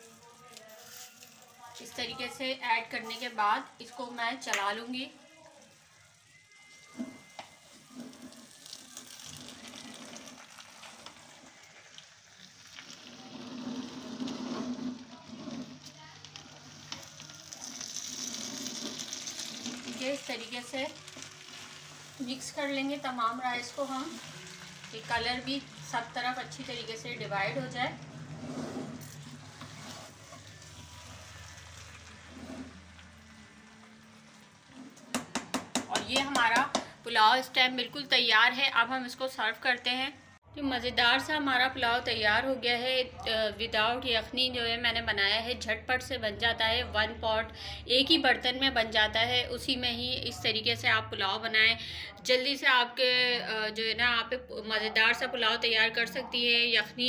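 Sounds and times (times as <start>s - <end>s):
faint sizzle: 0.0s - 28.4s, 29.0s - 35.3s
spatula scraping a pot: 12.8s - 16.0s, 17.6s - 20.2s, 28.2s - 33.0s
spatula stirring rice in a pan: 28.8s - 33.0s.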